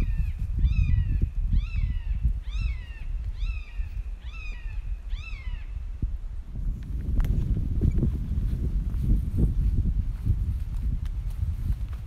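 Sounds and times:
bird calling: 0.0s - 5.9s.

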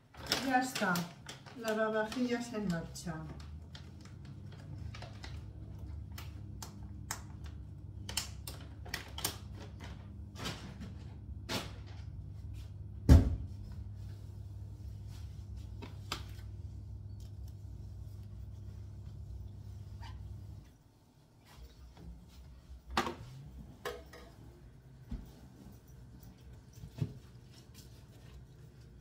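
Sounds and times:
plastic bag crinkling: 0.0s - 5.8s
dishwasher humming: 0.0s - 29.0s.

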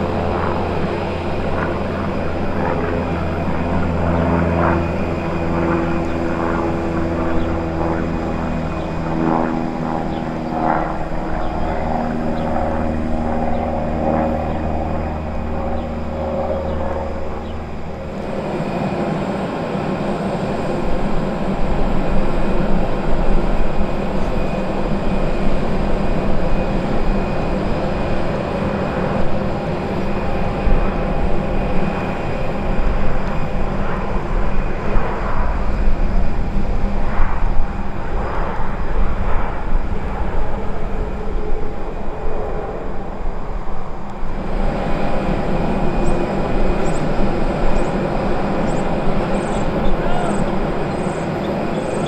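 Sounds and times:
propeller plane engine droning: 0.0s - 52.0s
steady rushing noise: 6.7s - 52.0s.

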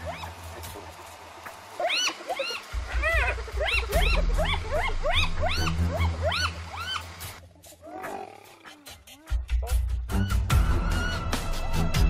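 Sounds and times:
hyenas giggling: 1.5s - 10.0s.

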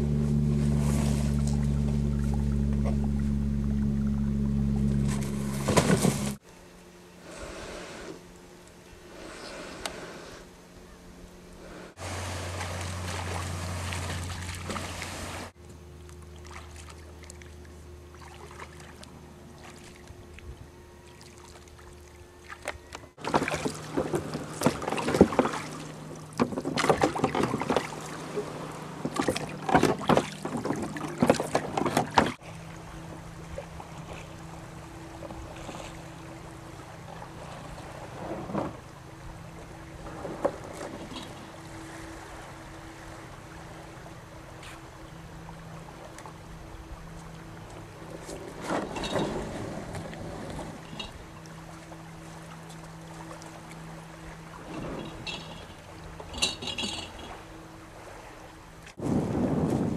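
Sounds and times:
oars splashing: 0.0s - 6.4s, 11.7s - 59.9s
faint steady hum: 0.0s - 59.9s
wind: 0.0s - 59.9s
lapping water: 12.0s - 32.4s.

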